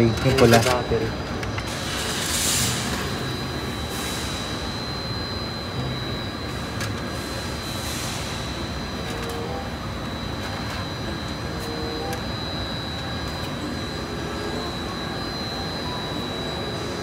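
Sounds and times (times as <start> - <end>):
mechanical roar with whine: 0.0 - 17.0.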